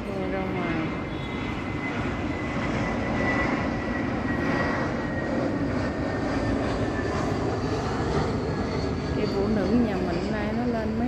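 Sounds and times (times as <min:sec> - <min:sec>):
faint high whine: 0:00.0 - 0:05.1.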